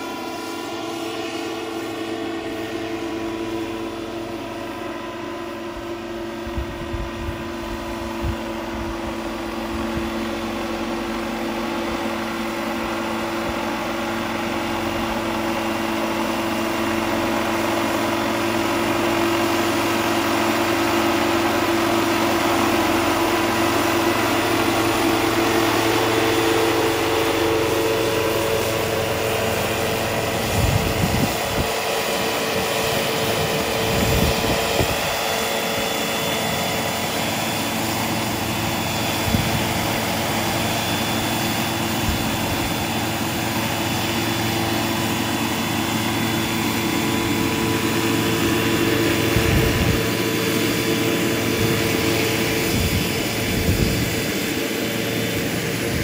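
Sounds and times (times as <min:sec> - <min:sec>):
model helicopter whining: 0:00.0 - 0:56.0
wind rumble on microphone: 0:05.7 - 0:10.6, 0:30.3 - 0:31.8, 0:33.3 - 0:35.4, 0:39.2 - 0:39.9, 0:49.2 - 0:50.2, 0:51.5 - 0:54.6.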